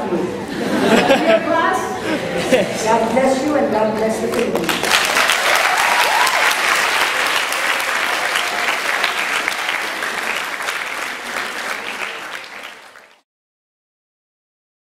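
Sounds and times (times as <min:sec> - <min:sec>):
audience clapping: 0:03.0 - 0:13.2.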